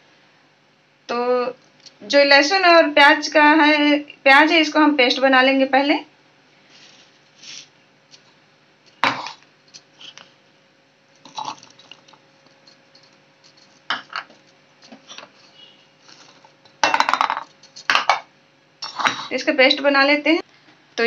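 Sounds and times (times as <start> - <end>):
plastic bowls knocking steel bowl: 16.8 - 18.3.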